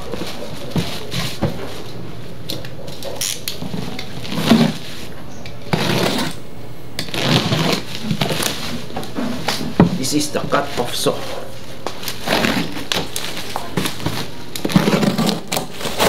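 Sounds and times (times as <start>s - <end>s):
bubble wrap crackling: 7.0s - 8.9s, 10.6s - 16.0s.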